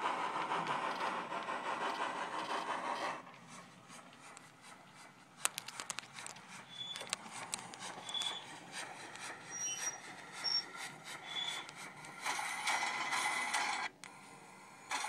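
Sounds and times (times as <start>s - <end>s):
model steam engine sounds: 0.0s - 15.0s
steam hiss: 0.0s - 15.0s
clicks: 5.4s - 9.4s
short high squeaks: 6.5s - 8.6s, 9.3s - 11.8s.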